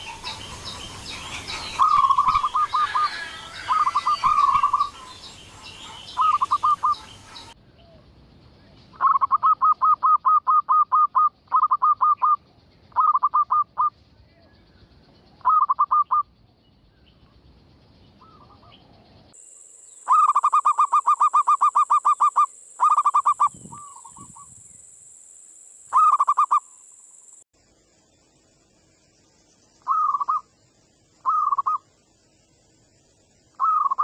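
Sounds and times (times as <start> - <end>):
dove cooing song: 0.0 - 7.6, 9.0 - 13.9, 20.1 - 24.6, 25.9 - 26.6, 29.9 - 30.4, 31.2 - 31.8, 33.6 - 34.0
steady high hiss: 19.4 - 29.8.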